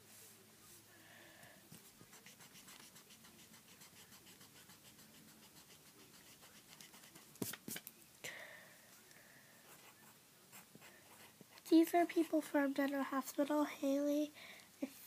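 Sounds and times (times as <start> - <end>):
handwriting scratching on paper: 1.8 - 7.8.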